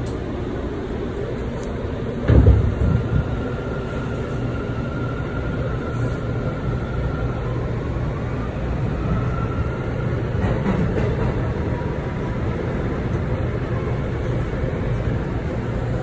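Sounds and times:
subway train rumble: 0.0s - 16.0s
loud thump: 2.3s - 2.9s.

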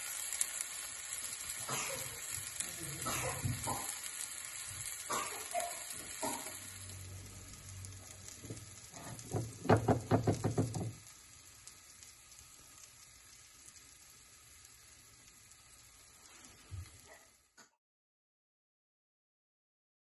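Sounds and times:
food sizzling in a pot: 0.0s - 17.7s
loud pops and spits: 1.5s - 6.8s, 8.2s - 11.0s.

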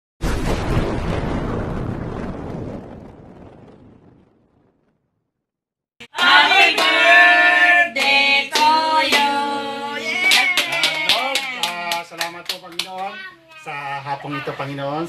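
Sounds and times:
hand claps: 6.0s - 7.1s, 8.0s - 9.4s, 10.1s - 13.2s
group singing: 6.0s - 11.3s.

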